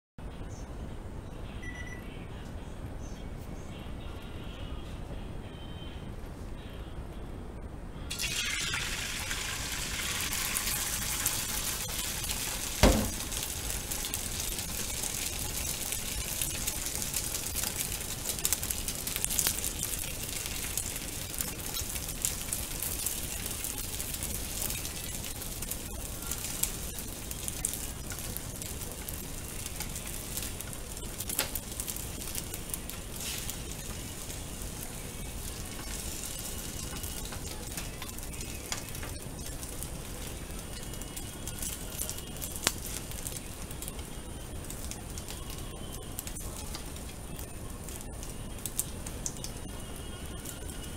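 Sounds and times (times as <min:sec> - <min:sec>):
egg sizzling in pan: 0:08.1 - 0:50.9
sharp knock: 0:12.8 - 0:13.3.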